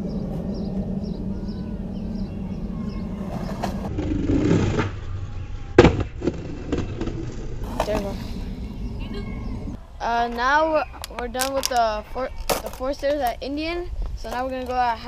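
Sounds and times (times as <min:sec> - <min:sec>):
skateboard rolling rumble: 0:00.0 - 0:15.0
skateboard clacking on concrete: 0:11.0 - 0:13.3.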